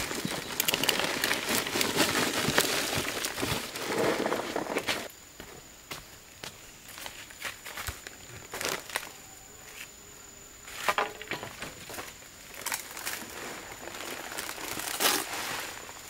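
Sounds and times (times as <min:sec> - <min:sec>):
crinkling and crunching of dry material: 0:00.0 - 0:05.1, 0:07.0 - 0:09.2, 0:10.9 - 0:16.0.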